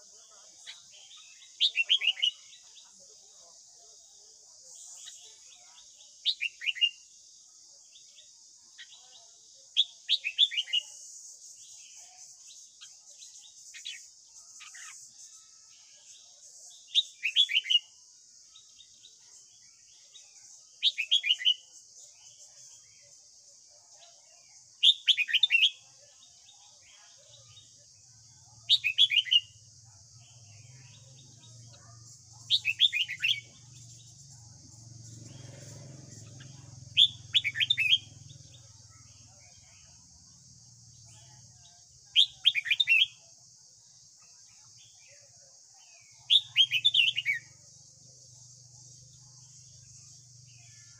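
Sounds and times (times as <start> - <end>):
bird singing whistled notes: 0.7 - 2.7, 4.8 - 7.1, 24.8 - 26.7, 28.6 - 29.6, 32.4 - 34.5, 36.4 - 38.7, 46.1 - 47.6.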